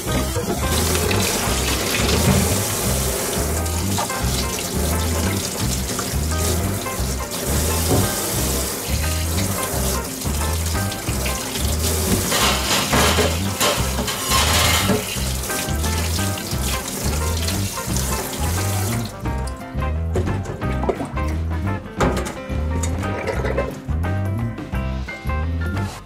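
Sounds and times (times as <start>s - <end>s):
tap water splashing into sink: 0.0s - 19.6s, 20.2s - 21.4s
background music with bass beat: 0.0s - 26.0s.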